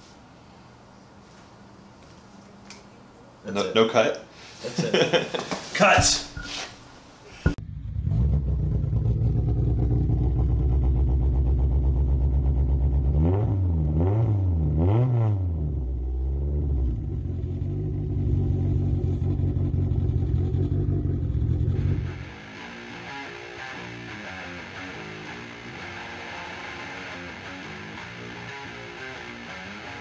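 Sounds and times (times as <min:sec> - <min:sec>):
car engine idling: 0:07.6 - 0:13.0, 0:16.1 - 0:22.2
engine revving blips: 0:07.6 - 0:26.6.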